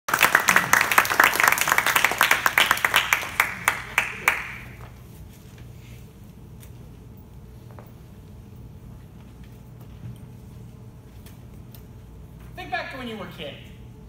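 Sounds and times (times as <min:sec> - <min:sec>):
audience applauding: 0:00.1 - 0:04.9.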